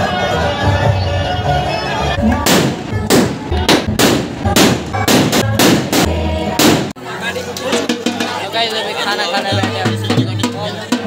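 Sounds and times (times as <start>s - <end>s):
music: 0.0s - 11.0s
firecrackers banging: 2.2s - 7.0s.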